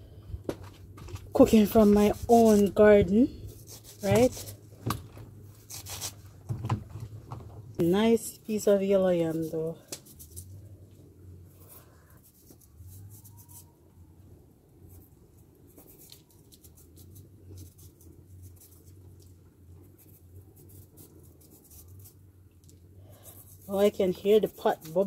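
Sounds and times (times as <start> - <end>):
knife paring yam skin: 1.2 - 5.0, 5.6 - 6.3, 11.8 - 13.8.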